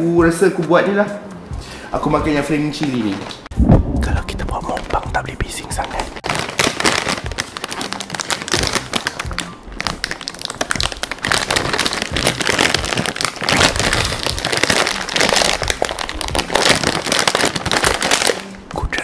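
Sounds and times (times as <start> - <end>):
chip packet crinkling: 5.6 - 18.5.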